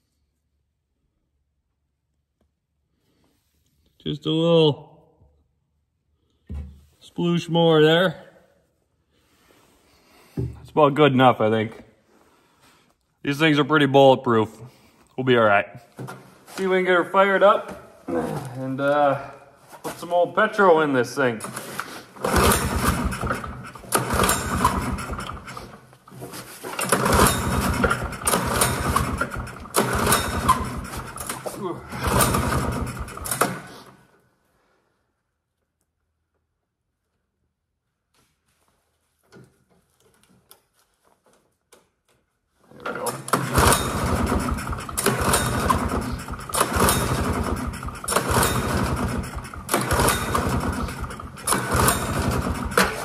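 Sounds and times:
engine cranking with recoil starter: 0:21.4 - 0:34.0, 0:42.9 - 0:53.0.

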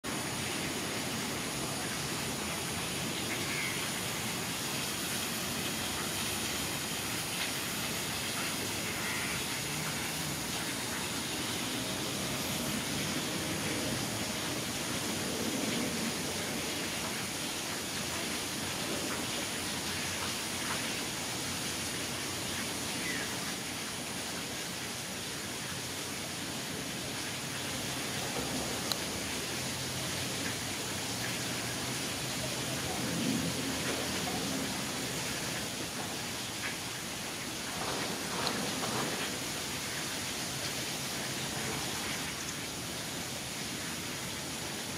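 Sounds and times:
outdoor background hiss: 0:00.0 - 0:44.9
faint high-pitched calls: 0:03.2 - 0:04.3, 0:08.4 - 0:10.2.

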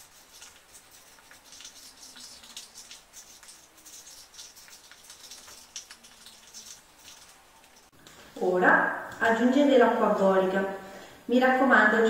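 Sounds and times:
spoon stirring glue in cup: 0:00.0 - 0:08.3.

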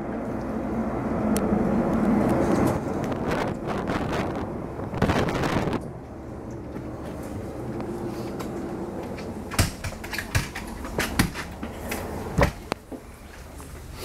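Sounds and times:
ferry engine low hum: 0:00.0 - 0:14.0
sharp clicks and knocks: 0:08.4 - 0:13.0.

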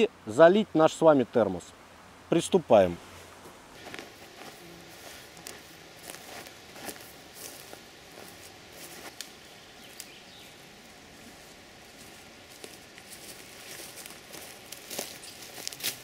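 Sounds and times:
boot scuffing soil: 0:03.0 - 0:09.3, 0:11.2 - 0:16.0
dry twigs snapping: 0:09.0 - 0:10.2, 0:12.6 - 0:16.0.

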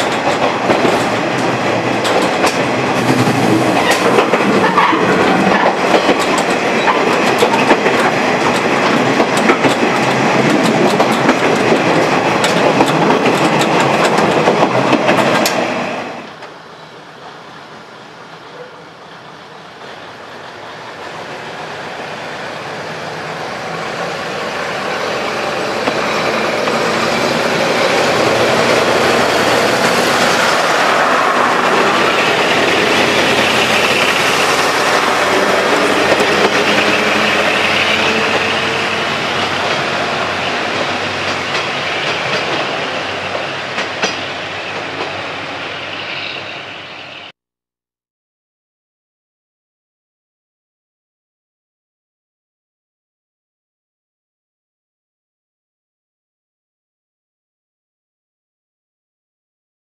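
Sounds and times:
wheels clacking over rail joints: 0:00.0 - 0:15.7, 0:25.8 - 0:40.0
diesel train engines passing: 0:00.0 - 0:47.3.

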